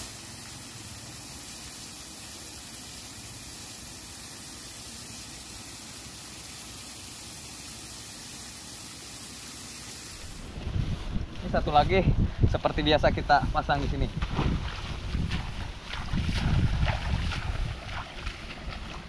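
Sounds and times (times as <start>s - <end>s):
stream water rushing: 14.2s - 19.0s.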